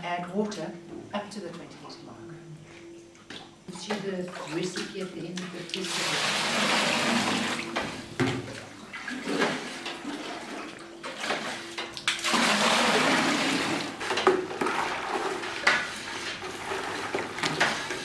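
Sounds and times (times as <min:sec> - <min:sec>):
hand stirring and splashing water: 0:03.7 - 0:18.0
water pouring into bucket: 0:05.6 - 0:07.8, 0:08.5 - 0:18.0.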